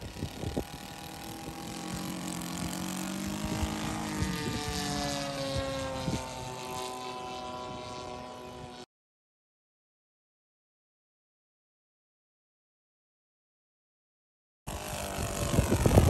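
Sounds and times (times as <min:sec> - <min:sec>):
wind buffeting microphone: 0:00.0 - 0:08.8, 0:14.7 - 0:16.0
model plane engine and propeller: 0:00.0 - 0:08.9, 0:14.7 - 0:16.0.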